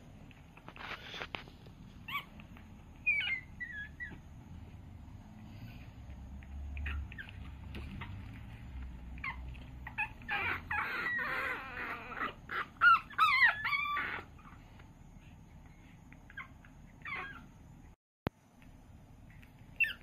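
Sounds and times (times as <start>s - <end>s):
puppies yipping and whining: 0.5s - 4.8s, 5.5s - 18.0s, 19.2s - 20.0s
puppy yelps: 2.0s - 4.3s, 6.7s - 14.7s, 15.8s - 17.6s, 19.3s - 20.0s.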